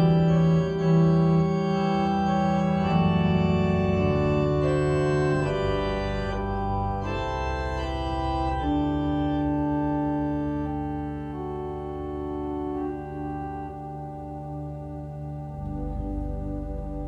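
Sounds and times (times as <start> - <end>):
church organ chords: 0.0 - 17.0.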